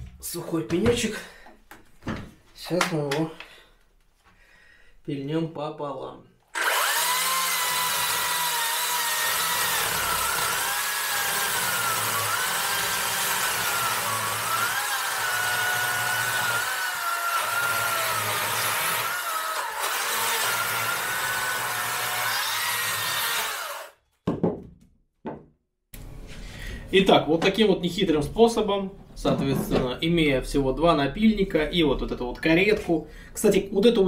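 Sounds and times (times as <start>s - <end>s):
chainsaw rasping through wood: 6.5s - 24.0s
electric chainsaw motor whine: 6.6s - 24.0s.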